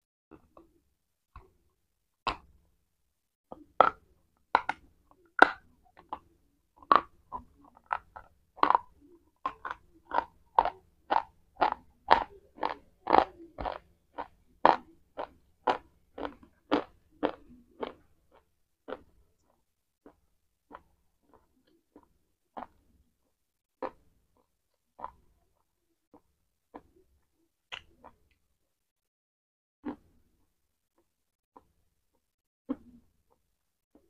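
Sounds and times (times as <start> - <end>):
crunchy chewing: 3.5 - 23.0, 23.8 - 27.0.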